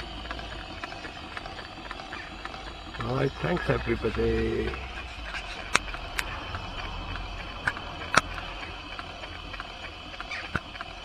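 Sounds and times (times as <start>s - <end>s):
model steam engine hissing: 0.0s - 11.0s
sharp clicks: 0.0s - 11.0s.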